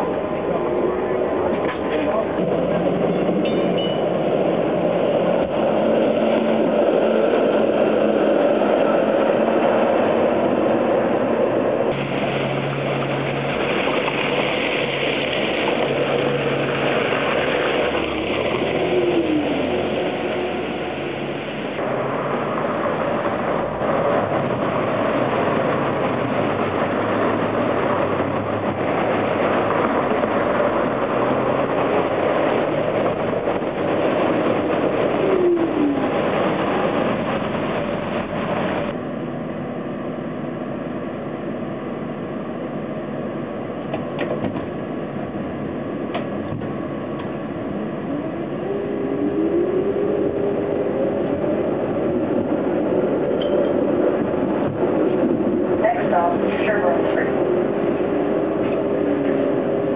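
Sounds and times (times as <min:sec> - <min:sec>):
streetcar motor whine: 0:00.0 - 0:59.9
streetcar running on rails: 0:00.0 - 0:59.9
wet street traffic: 0:00.0 - 0:59.9
vehicle passing by: 0:04.1 - 0:39.0.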